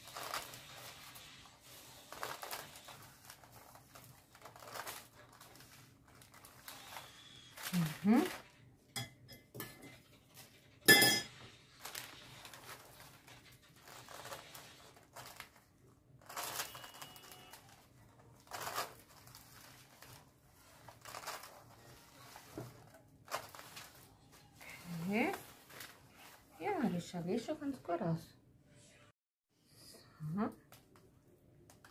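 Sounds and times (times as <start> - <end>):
soft rustling and crinkling: 0.0 - 8.8, 11.4 - 28.0
metal spoon clinking glass bowl: 10.8 - 11.4.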